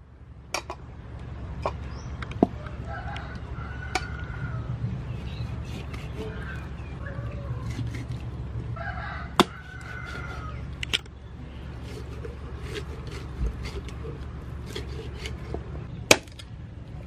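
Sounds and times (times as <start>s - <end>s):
rooster crowing: 2.6s - 4.8s, 6.2s - 7.9s, 8.7s - 10.6s.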